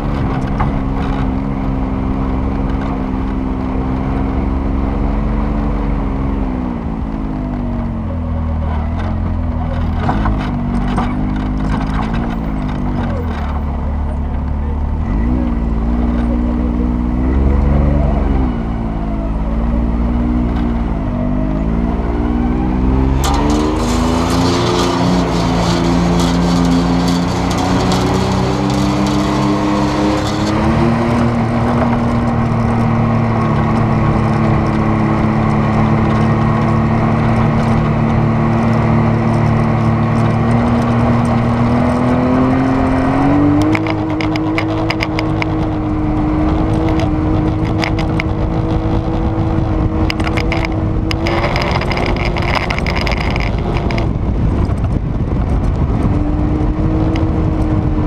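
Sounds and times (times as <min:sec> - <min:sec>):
vehicle engine accelerating: 0:00.0 - 0:58.0
crackles: 0:23.2 - 0:42.2, 0:50.0 - 0:54.9.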